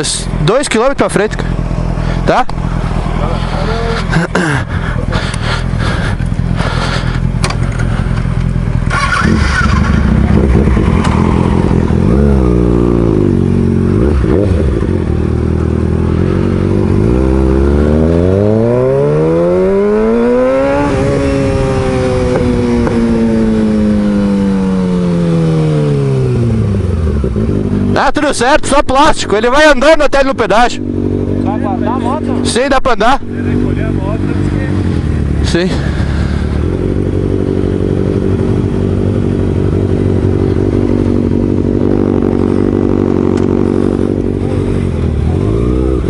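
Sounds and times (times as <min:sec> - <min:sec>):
motorcycle engine accelerating: 0:00.0 - 0:46.0
engine knocking and clattering: 0:03.7 - 0:11.2.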